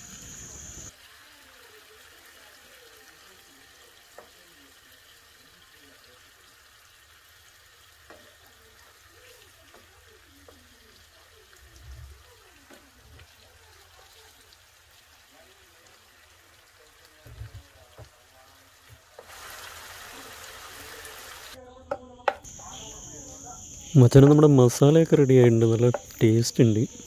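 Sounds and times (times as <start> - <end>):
food bubbling in a pan: 0.0 - 27.0
spoon tapping against pan: 8.0 - 8.4, 9.6 - 10.7, 21.9 - 22.5, 25.6 - 26.2.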